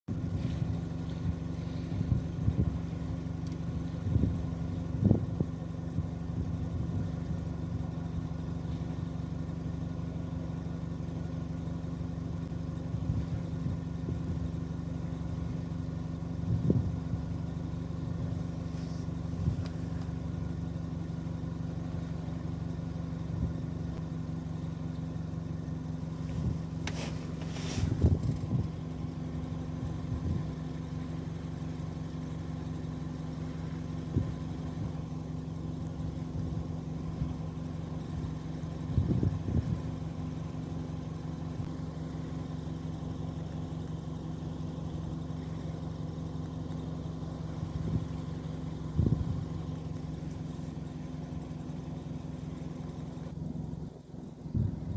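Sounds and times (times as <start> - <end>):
low mechanical hum: 0.1 - 54.9
brief hiss: 26.8 - 28.1.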